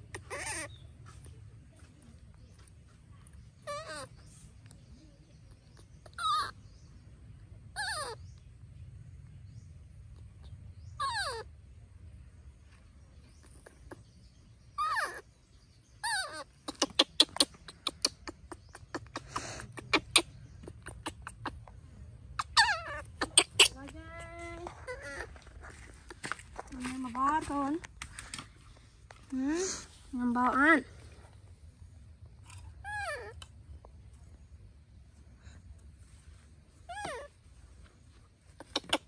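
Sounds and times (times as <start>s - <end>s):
baby monkey calling: 0.0s - 0.9s, 3.6s - 4.8s, 5.8s - 6.8s, 7.7s - 8.4s, 10.4s - 11.5s, 14.8s - 15.3s, 16.0s - 21.8s, 22.4s - 25.6s, 36.8s - 37.4s, 38.6s - 39.0s.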